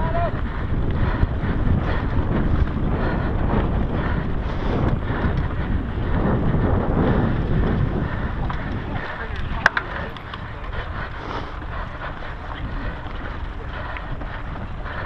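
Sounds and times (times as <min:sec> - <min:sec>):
bike rattling over bumps: 0:00.0 - 0:15.0
bike tyre noise: 0:00.0 - 0:15.0
wind buffeting microphone: 0:00.0 - 0:15.0.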